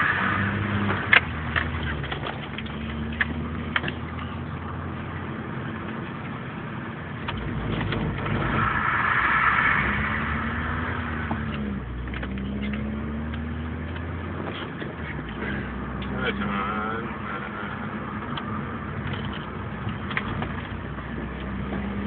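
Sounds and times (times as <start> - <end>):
rushing noise: 0.0 - 2.4, 7.4 - 13.3
car engine revving: 0.0 - 22.0.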